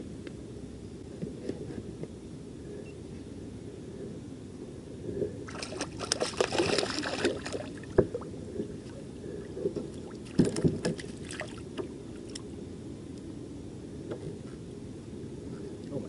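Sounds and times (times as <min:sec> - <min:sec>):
fish splashing at water surface: 0:05.5 - 0:08.2.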